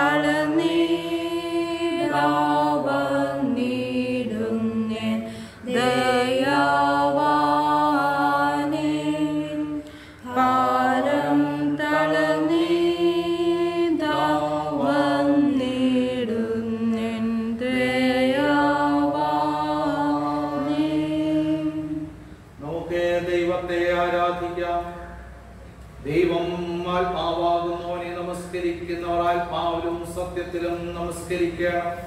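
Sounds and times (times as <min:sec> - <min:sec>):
man chanting a prayer: 0:22.6 - 0:25.3, 0:26.0 - 0:32.0.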